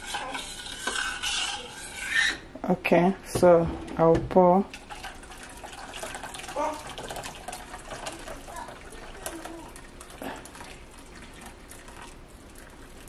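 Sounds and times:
water pouring into bowl: 4.7 - 13.0.

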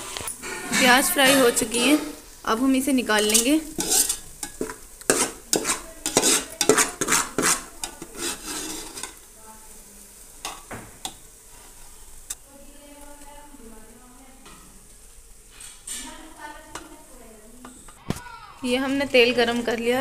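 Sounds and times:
steel ladle scraping a pot: 0.0 - 2.4, 3.2 - 9.2
oil sizzling: 0.0 - 20.0.

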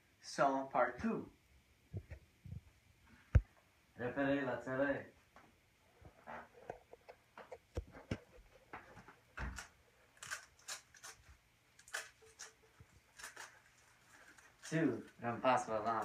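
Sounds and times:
paper rustling: 9.4 - 16.0.

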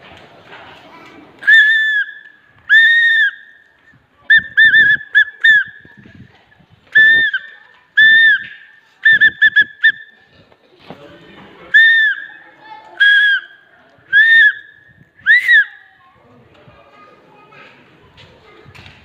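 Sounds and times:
referee's whistle blowing: 1.4 - 3.7, 4.3 - 5.9, 7.0 - 10.2, 11.7 - 12.4, 13.0 - 15.9.

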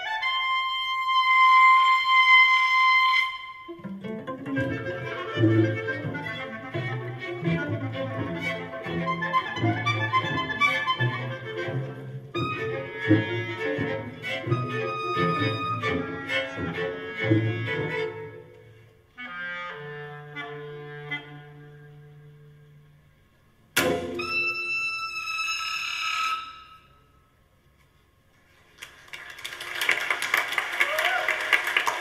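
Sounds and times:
clarinet and string orchestra: 0.0 - 26.9
audience applause: 28.7 - 32.0.

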